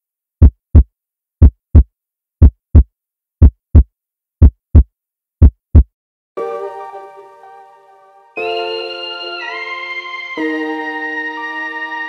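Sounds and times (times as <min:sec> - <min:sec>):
heartbeat thumps: 0:00.4 - 0:05.9.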